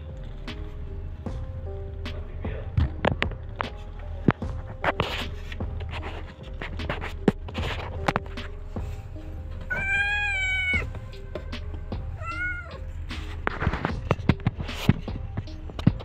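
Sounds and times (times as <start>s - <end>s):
cat mewing: 9.7s - 10.9s, 12.1s - 12.9s.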